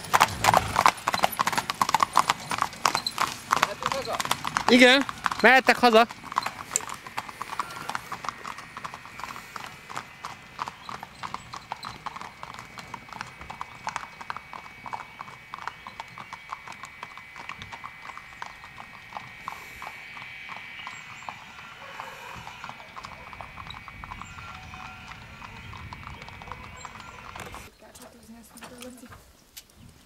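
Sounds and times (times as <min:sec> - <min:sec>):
horse hooves clip-clopping on asphalt: 0:00.0 - 0:29.7
faint high whine: 0:05.4 - 0:27.7.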